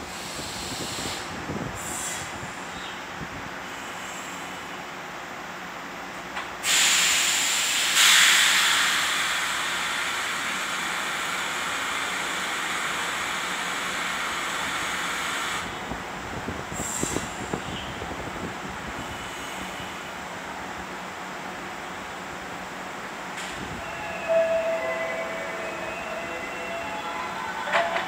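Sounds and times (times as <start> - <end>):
compressed air hissing: 6.6 - 10.2.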